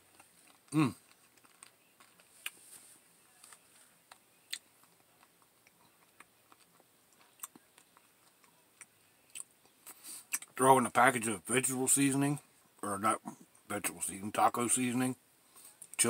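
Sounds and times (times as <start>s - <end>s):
chewing with mouth clicks: 0.0s - 2.6s, 3.4s - 10.5s.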